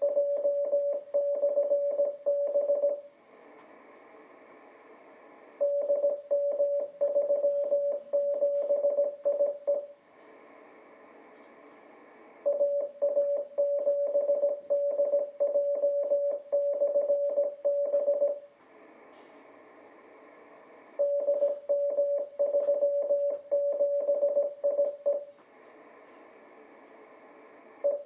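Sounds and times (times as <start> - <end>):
morse code tone: 0.0 - 3.0, 5.6 - 9.9, 12.5 - 18.4, 21.0 - 25.3
receiver hiss: 0.0 - 28.0.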